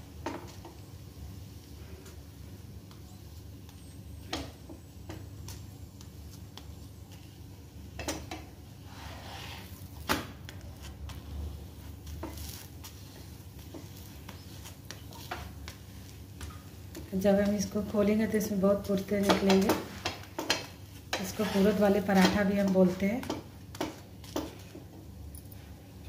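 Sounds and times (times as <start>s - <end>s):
low steady hum: 0.0s - 26.0s
spatula scraping on griddle: 8.8s - 10.0s, 19.8s - 22.4s.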